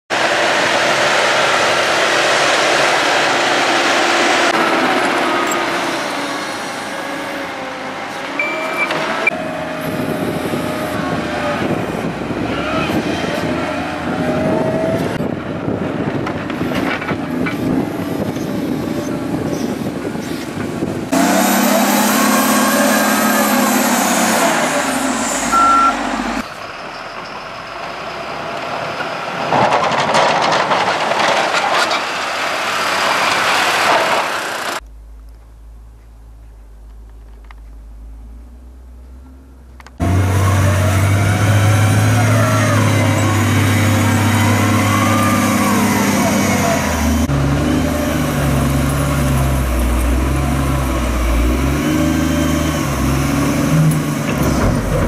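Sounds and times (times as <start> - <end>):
diesel engines under load: 0.1 - 55.0
reversing beep: 8.4 - 9.4, 25.5 - 26.1.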